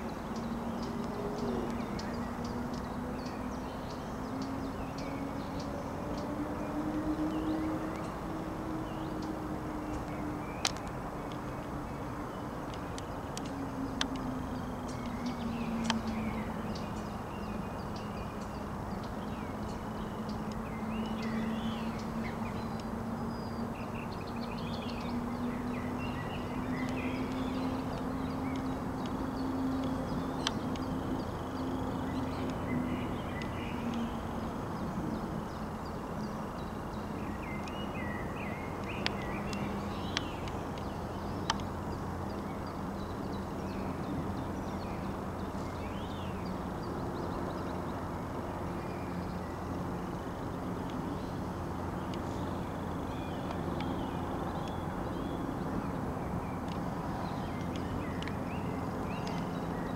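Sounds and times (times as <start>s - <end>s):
songbird chirping and warbling: 0.0s - 59.9s.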